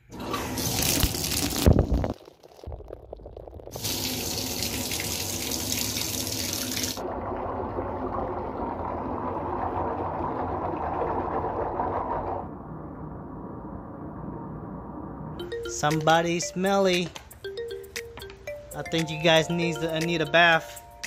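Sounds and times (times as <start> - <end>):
faucet water running into tub: 0.1 - 2.7, 3.6 - 12.2.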